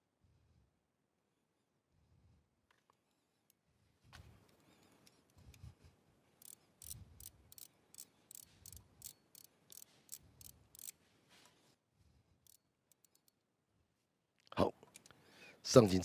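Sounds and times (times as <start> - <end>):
ratchet wrench clicking: 6.4 - 11.0, 12.4 - 13.4.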